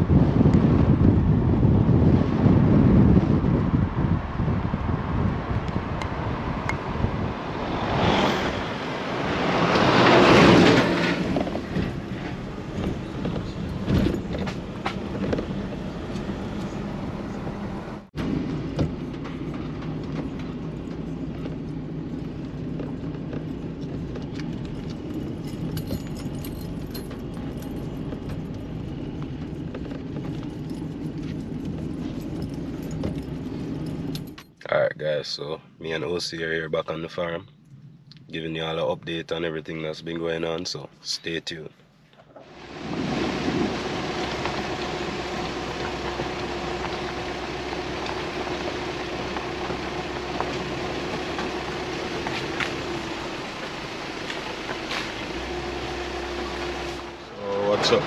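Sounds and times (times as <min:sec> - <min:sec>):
car engine and road noise: 0:00.0 - 0:58.0
quiet engine hum on dirt lane: 0:00.0 - 0:58.0
loud rushing noise: 0:05.8 - 0:12.7.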